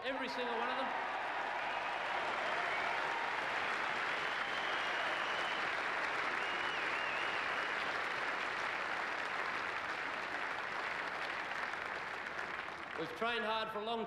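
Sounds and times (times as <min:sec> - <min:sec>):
crowd applauding: 0:00.0 - 0:13.5.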